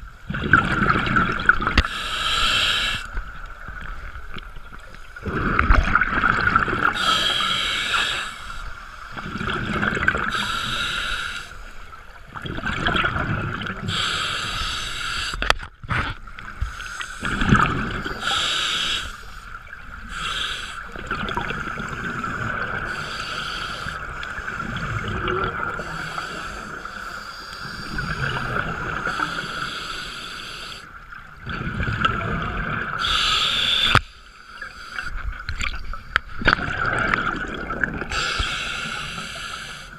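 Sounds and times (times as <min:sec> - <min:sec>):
exhaled bubbles gurgling: 0:00.0 - 0:34.0, 0:34.6 - 0:39.9
regulator inhalation hiss: 0:01.8 - 0:03.2, 0:07.0 - 0:09.2, 0:10.3 - 0:11.7, 0:13.9 - 0:15.5, 0:16.6 - 0:17.4, 0:18.1 - 0:21.0, 0:21.9 - 0:24.8, 0:25.8 - 0:28.3, 0:29.0 - 0:30.9, 0:33.0 - 0:35.2, 0:38.1 - 0:39.9.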